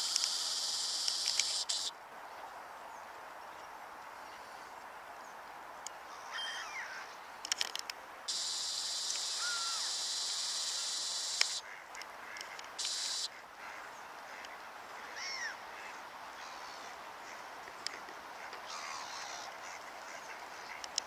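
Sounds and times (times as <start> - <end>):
scattered clicks: 0.0 - 1.9, 7.4 - 13.3, 20.8 - 21.0
steady high hiss: 0.0 - 21.0
waterfowl squeaky calls: 8.3 - 11.8, 18.4 - 20.8.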